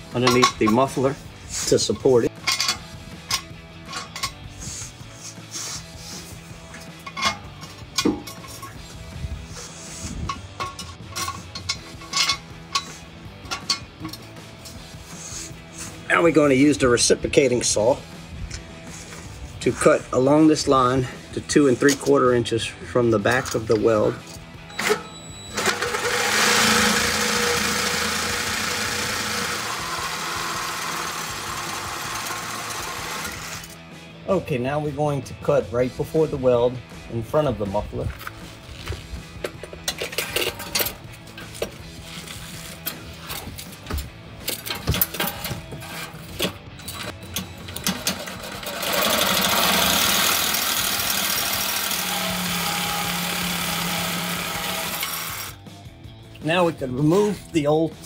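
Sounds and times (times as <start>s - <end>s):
reciprocating saw cutting metal pipe: 24.9s - 33.8s, 48.5s - 55.6s.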